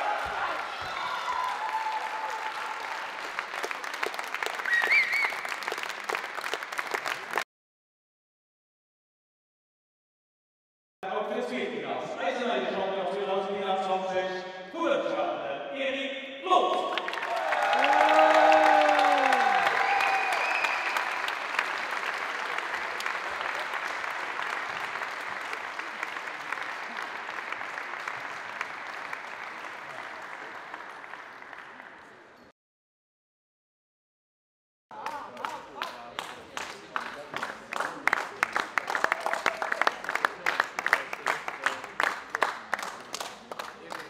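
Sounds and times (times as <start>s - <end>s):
loud drawn-out shout: 0.0s - 2.9s, 16.5s - 21.0s
audience applauding: 0.0s - 7.4s, 16.8s - 32.4s, 35.0s - 44.0s
wavering whistle: 4.7s - 5.5s.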